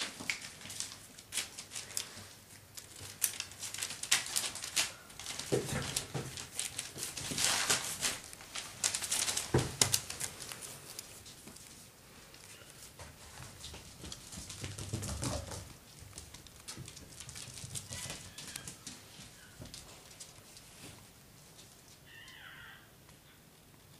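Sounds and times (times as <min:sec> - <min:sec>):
newspaper rustling: 0:00.0 - 0:15.0.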